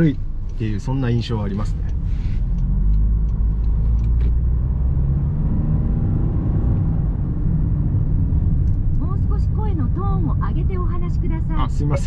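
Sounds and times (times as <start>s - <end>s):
faint engine hum: 0.0s - 12.0s
road and tyre noise: 0.0s - 12.0s.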